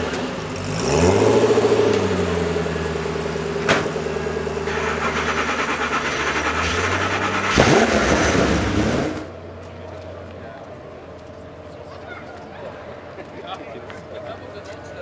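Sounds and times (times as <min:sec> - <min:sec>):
car engine revving and idling: 0:00.0 - 0:09.6.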